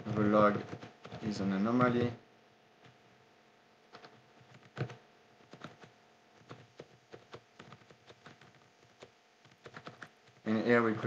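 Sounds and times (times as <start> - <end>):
computer keyboard typing: 0.1 - 1.4, 3.9 - 11.0.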